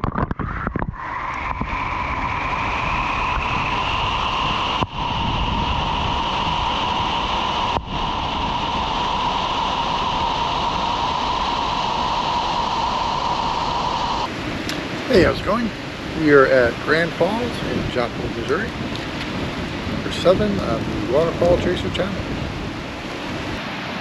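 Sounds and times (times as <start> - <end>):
waterfall roaring: 6.3 - 24.0.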